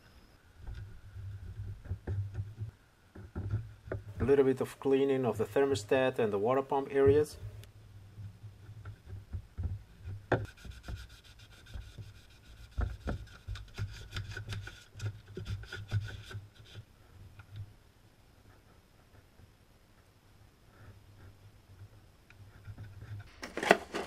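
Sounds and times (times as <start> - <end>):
hand rubbing and scraping metal: 8.2 - 17.5.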